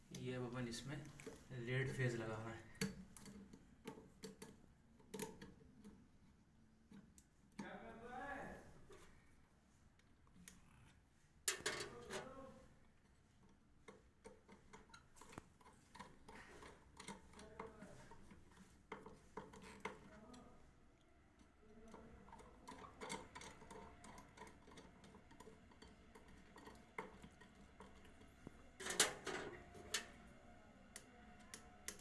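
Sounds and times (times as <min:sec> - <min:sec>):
screwdriver clicks and metallic ticks: 0:30.9 - 0:32.0.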